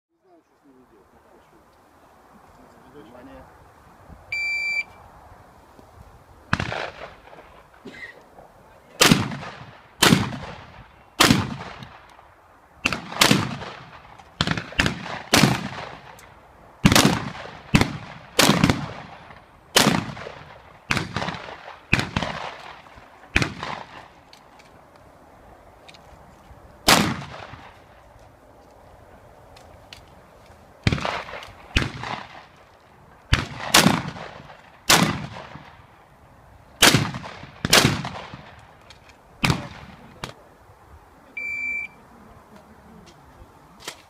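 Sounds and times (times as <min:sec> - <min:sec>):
electronic shot timer beep: 0:04.4 - 0:04.9
shotgun shots echoing: 0:06.5 - 0:07.7, 0:09.0 - 0:12.1, 0:12.8 - 0:16.2, 0:16.8 - 0:24.1, 0:26.9 - 0:27.8, 0:30.8 - 0:32.5, 0:33.3 - 0:35.8, 0:36.8 - 0:38.6, 0:39.4 - 0:40.3.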